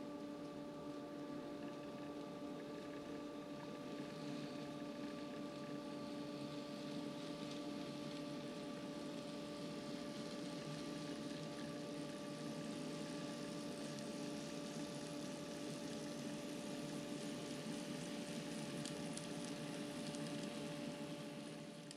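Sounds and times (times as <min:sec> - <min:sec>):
faint ticks: 0:17.4 - 0:20.7.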